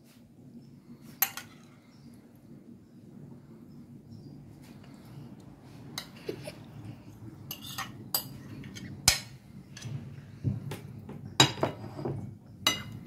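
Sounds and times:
metal spoon clinking on dish: 7.5s - 9.9s, 12.6s - 13.0s.

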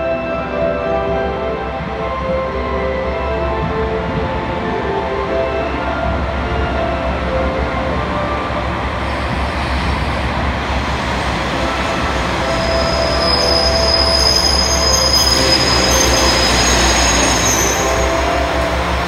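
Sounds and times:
diesel train engine and wheels: 0.0s - 19.0s
high-pitched brake squeal: 11.6s - 19.0s.

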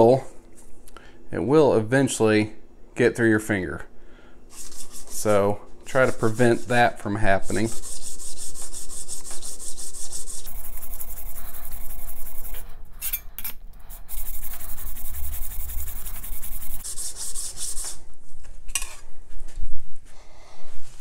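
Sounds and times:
scraper scraping on sharpening stone: 9.5s - 16.8s.

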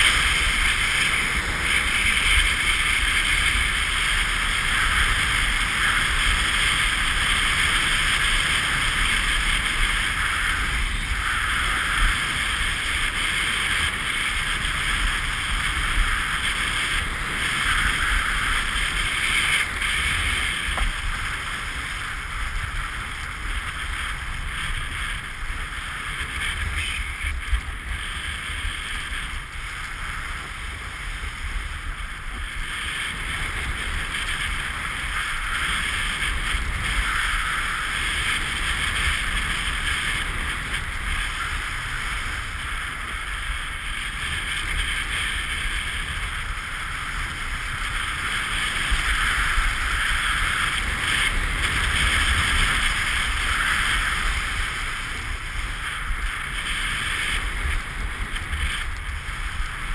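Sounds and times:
snowboard scraping over snow: 0.0s - 59.9s
wind rumbling on microphone: 0.0s - 59.9s.

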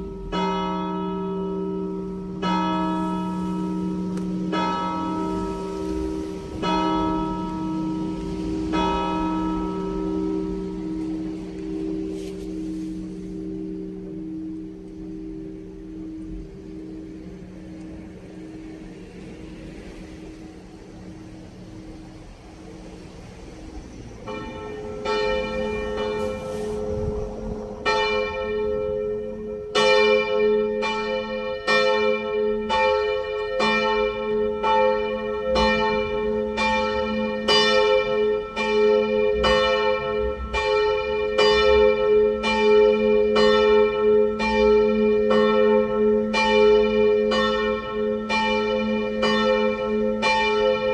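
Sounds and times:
church bell ringing: 0.0s - 50.9s
low hum: 3.0s - 30.7s.

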